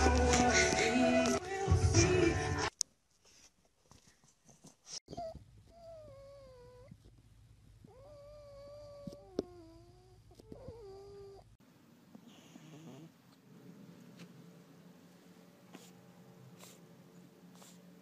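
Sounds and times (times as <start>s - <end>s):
dog whining: 5.1s - 7.0s, 7.8s - 11.5s.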